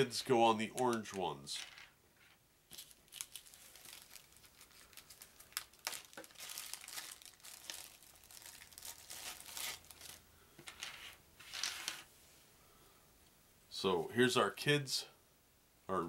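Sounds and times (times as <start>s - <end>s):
packaging crinkling: 2.7s - 10.2s.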